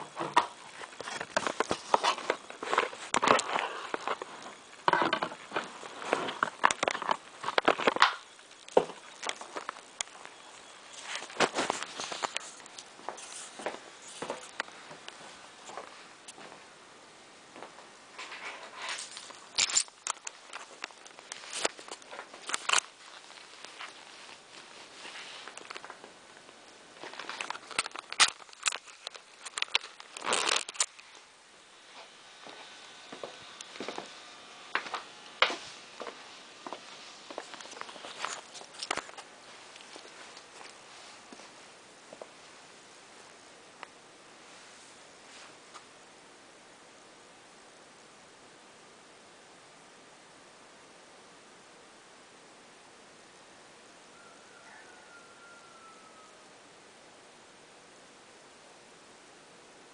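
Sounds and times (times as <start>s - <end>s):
camera handling rustling and bumping: 0.2s - 14.7s, 18.2s - 24.4s, 27.0s - 31.0s, 37.3s - 40.8s
camera handling noise: 18.9s - 23.0s.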